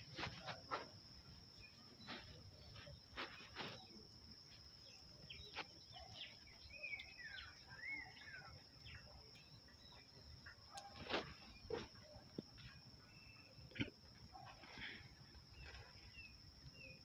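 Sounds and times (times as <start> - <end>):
insect drone: 0.0 - 17.0
bird calling: 5.3 - 17.0.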